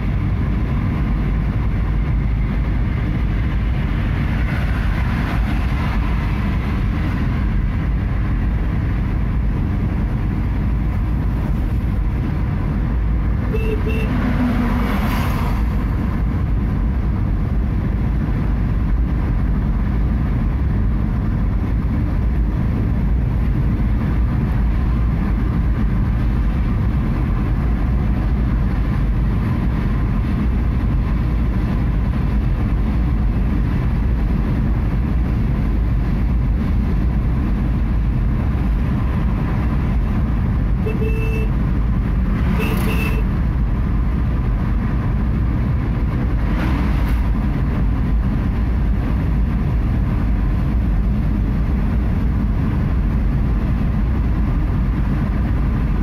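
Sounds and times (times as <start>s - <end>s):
car engine and tyres rumbling: 0.0s - 56.0s
vehicle horn beeps: 13.5s - 14.3s, 40.8s - 41.6s, 42.5s - 43.3s.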